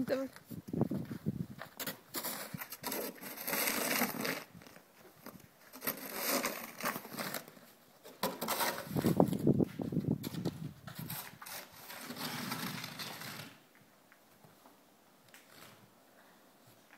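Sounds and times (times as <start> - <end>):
snow shovel scraping pavement: 1.8 - 4.6, 5.7 - 9.3, 11.0 - 13.6.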